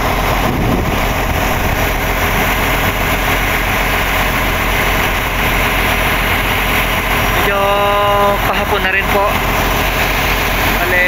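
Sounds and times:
boat engine running: 0.0 - 11.0
water rushing along hull: 0.0 - 11.0.

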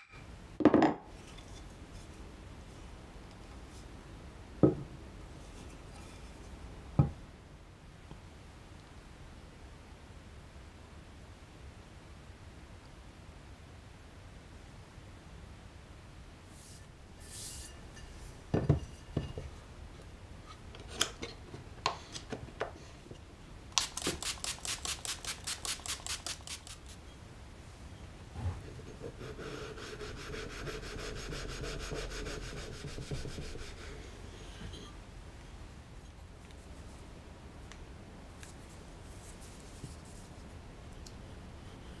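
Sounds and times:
spray bottle pumping: 23.8 - 27.0.

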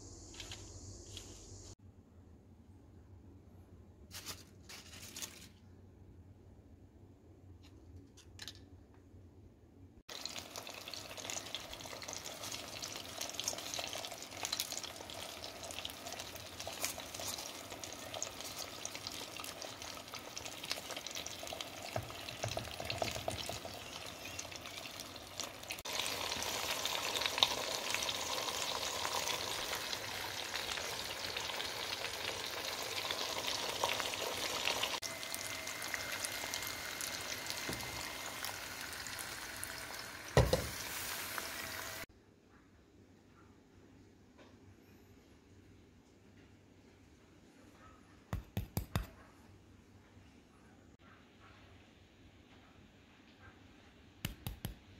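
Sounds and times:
fish frying in oil: 10.1 - 42.1.

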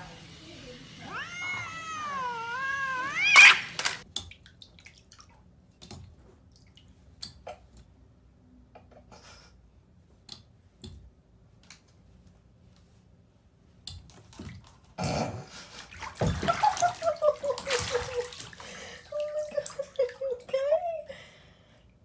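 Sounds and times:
cat yowling: 1.0 - 4.0
faint taps and drips: 4.0 - 8.0.

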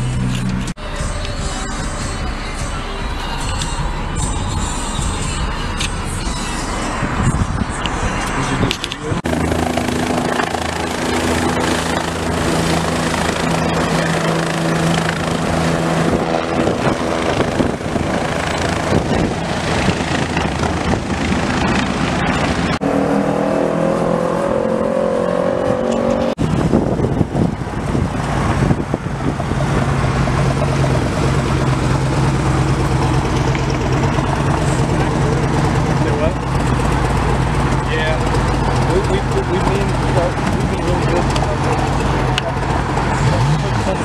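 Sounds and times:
passing vehicle engines: 0.0 - 44.0.

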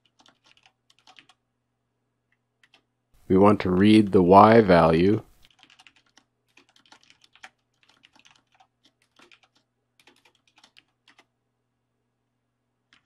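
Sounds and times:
faint keyboard typing: 0.0 - 1.4, 2.2 - 3.0, 5.3 - 11.4.

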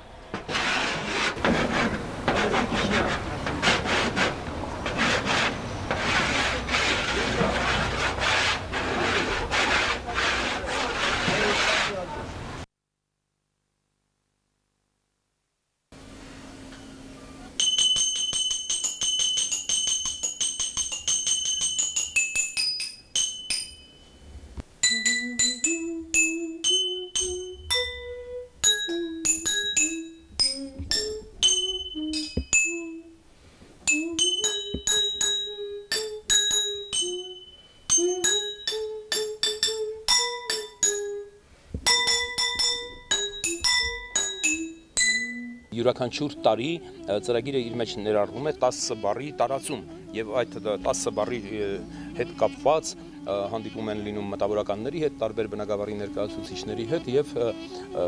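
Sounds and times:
glasses struck ringing notes: 16.6 - 33.2, 33.8 - 58.0
low gliding melody: 24.2 - 33.2, 45.4 - 58.0.

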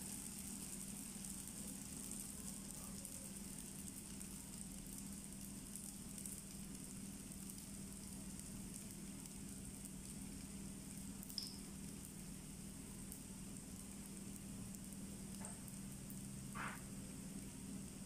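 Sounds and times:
dough sizzling in oil: 0.0 - 18.0
low steady hum: 0.0 - 18.0
oil pop: 16.6 - 17.0.

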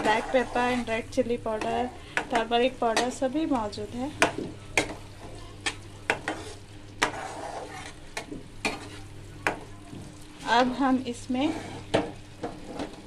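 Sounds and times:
metal spatula scraping a pan: 0.0 - 1.0, 5.6 - 8.0, 8.6 - 9.1, 11.2 - 13.0
masala sizzling: 0.0 - 13.0.

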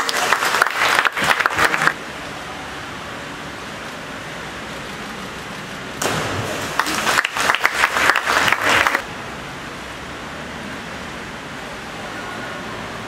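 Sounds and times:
spectators applauding: 0.0 - 2.0, 6.6 - 9.0
diver splashing into pool: 6.0 - 9.0.

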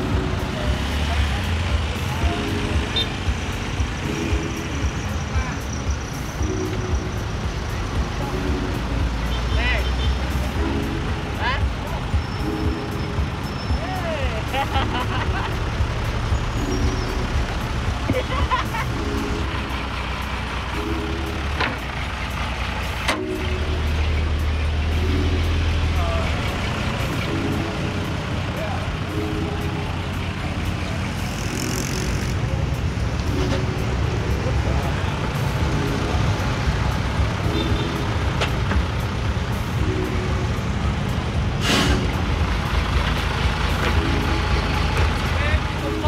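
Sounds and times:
truck engine running: 0.0 - 46.0
short burst of hiss: 41.6 - 42.1.

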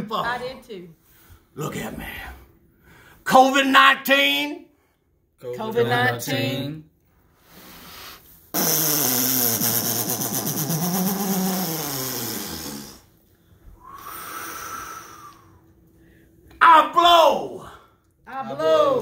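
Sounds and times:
man blowing growling breath: 7.4 - 13.1, 13.8 - 15.6.

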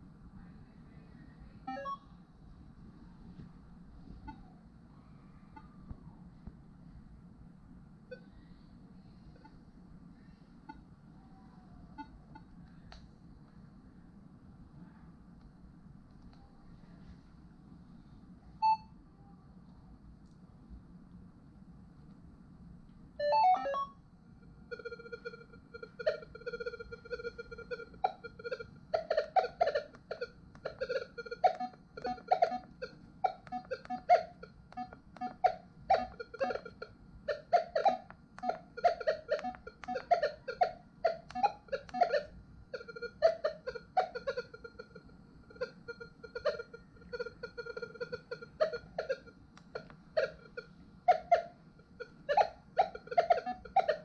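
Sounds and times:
steady high tone: 23.2 - 54.0
low warbling detector chirps: 41.3 - 54.0.

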